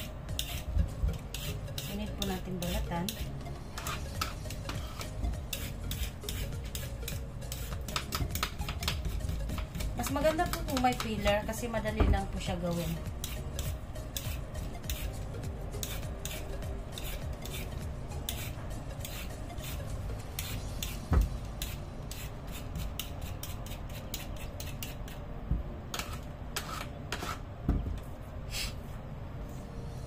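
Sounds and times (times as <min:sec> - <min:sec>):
peeler scraping carrot: 0:00.0 - 0:09.1, 0:12.5 - 0:15.2, 0:15.8 - 0:25.2, 0:25.9 - 0:27.5.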